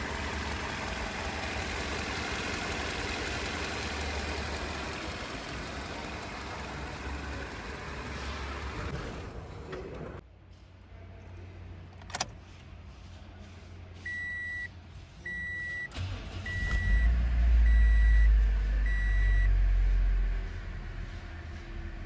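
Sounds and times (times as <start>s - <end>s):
car engine starting and idling: 0.0s - 10.2s, 15.3s - 22.0s.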